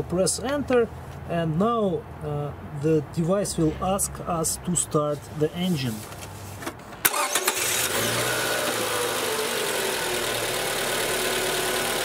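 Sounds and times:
car engine idling: 7.0 - 12.0
starter cranking engine: 7.0 - 12.0.

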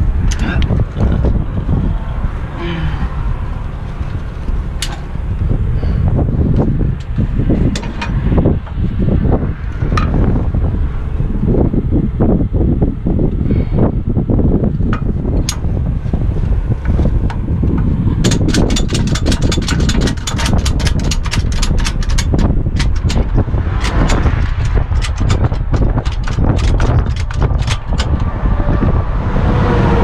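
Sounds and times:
low rumble: 0.0 - 30.0
ratchet clicking: 17.2 - 28.3.

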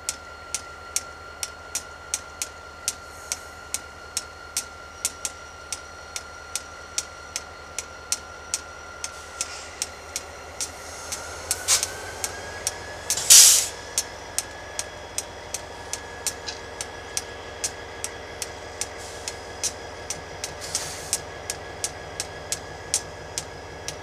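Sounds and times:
faint steady whine: 0.0 - 24.0
bursts of hiss: 10.6 - 14.0.

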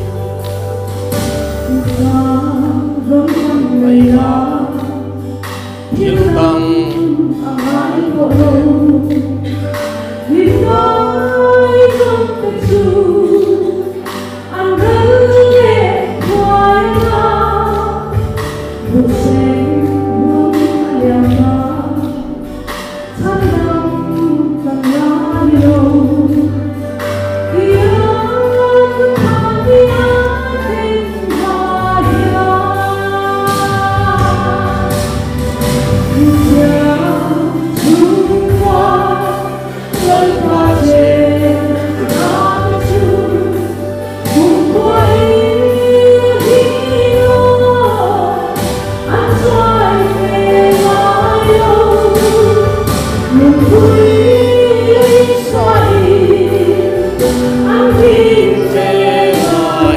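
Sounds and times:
instrumental backing with bass and beat: 0.0 - 59.9
choir singing gospel song: 27.7 - 59.9.

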